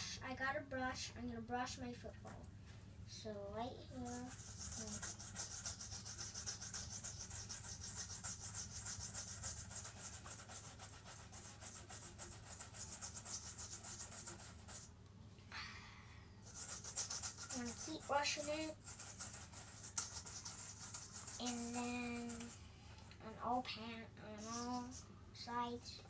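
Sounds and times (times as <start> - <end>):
brush scrubbing leather ball: 4.0 - 14.9, 16.5 - 22.6, 24.4 - 25.0.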